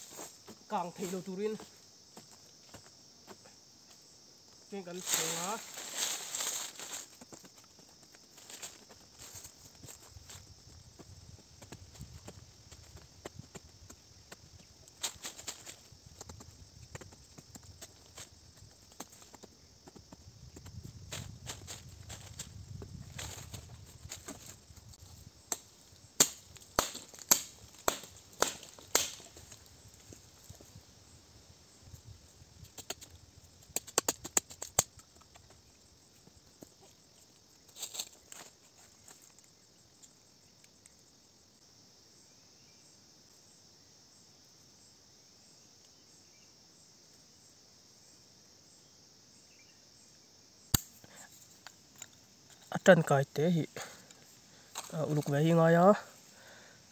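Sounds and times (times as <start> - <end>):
faint outdoor hiss: 0.0 - 56.9
scraping in dry soil: 4.9 - 7.2, 20.0 - 25.7
sharp cracks and knocks: 25.5 - 29.6, 33.7 - 35.5, 50.7 - 51.2.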